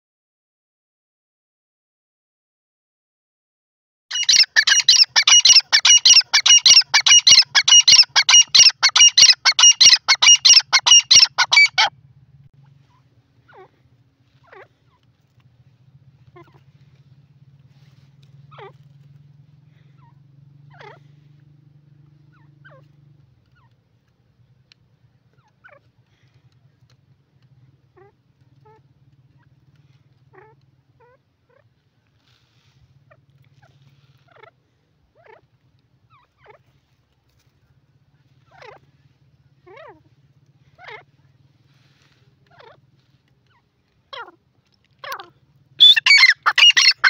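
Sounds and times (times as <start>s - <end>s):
francolin calling: 4.1s - 11.9s, 45.0s - 47.0s.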